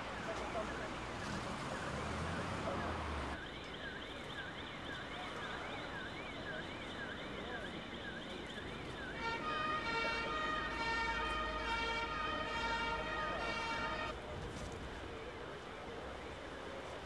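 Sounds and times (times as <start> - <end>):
emergency vehicle siren wailing: 0.0 - 14.2.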